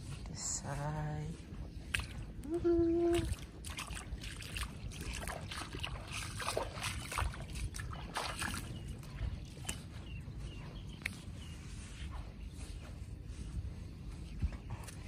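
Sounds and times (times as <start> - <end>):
steady low rumble: 0.0 - 15.0
sea water splashing: 3.1 - 8.8.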